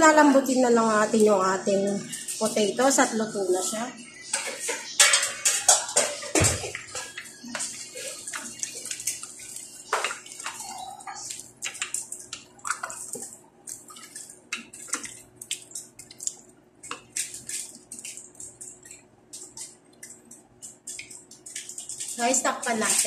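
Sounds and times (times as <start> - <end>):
wooden spatula scraping pot: 4.3 - 18.2
wet squelching and sloshing of stew: 6.7 - 23.0.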